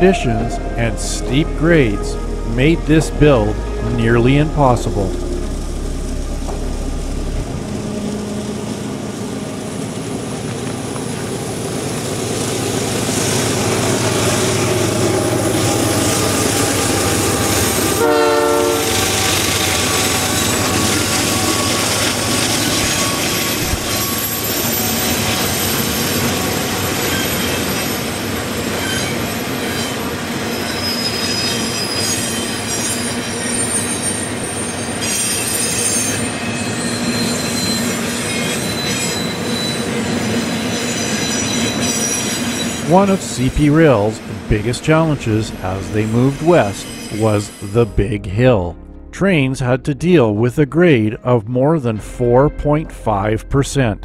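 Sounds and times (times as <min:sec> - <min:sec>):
locomotive horn blast: 0:00.0 - 0:11.6, 0:13.3 - 0:27.8
freight train rumbling on rails: 0:00.0 - 0:48.0
wheels squealing: 0:12.4 - 0:42.9, 0:46.7 - 0:47.8.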